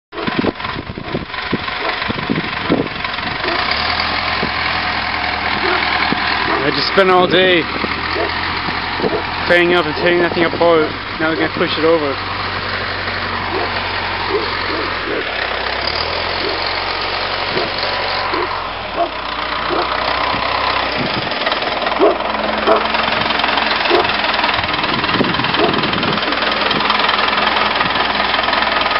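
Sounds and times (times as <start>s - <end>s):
wheel loader engine running: 0.1s - 28.9s
dull bumps: 7.6s - 11.5s, 12.2s - 28.1s.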